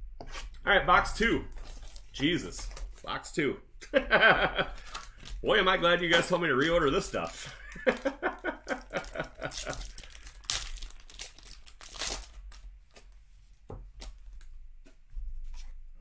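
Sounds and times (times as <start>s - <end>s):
foil wrapper tearing and crinkling: 1.2s - 3.1s, 4.6s - 13.2s
cards clicking and rustling: 1.5s - 3.1s, 4.7s - 14.4s.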